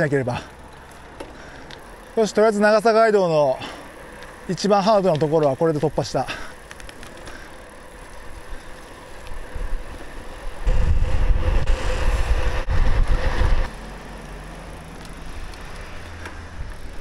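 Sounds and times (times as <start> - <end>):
bicycle tyre road noise: 0.0 - 17.0
wind rushing over microphone: 9.3 - 13.7.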